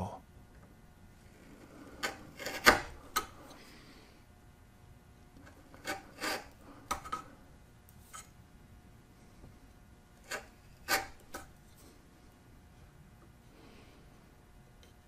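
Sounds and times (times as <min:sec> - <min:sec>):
file rasping on wood: 0:01.5 - 0:03.5, 0:05.5 - 0:07.3, 0:10.2 - 0:11.5.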